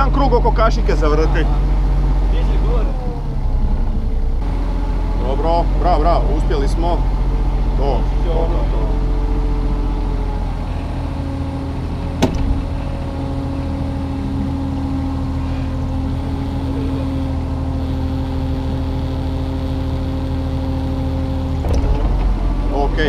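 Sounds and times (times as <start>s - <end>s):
diesel engine running: 0.0s - 23.0s
metal clank: 12.2s - 13.0s.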